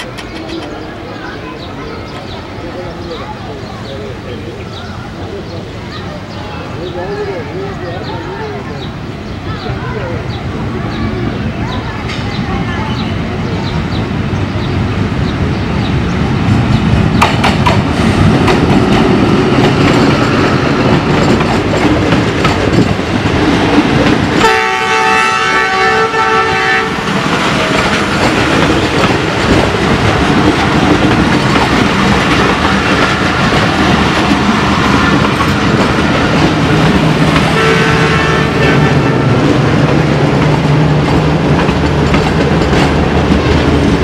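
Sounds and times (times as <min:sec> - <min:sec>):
train wheels clattering: 0:00.0 - 0:02.4, 0:15.5 - 0:44.0
train horn blast: 0:24.4 - 0:27.1, 0:37.5 - 0:39.7.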